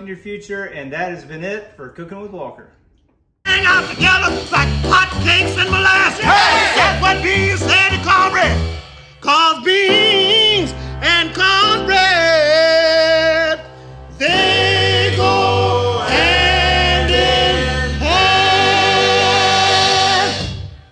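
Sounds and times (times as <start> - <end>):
person singing a song: 3.5 - 8.6, 9.2 - 20.7
steady bass line: 3.5 - 8.9.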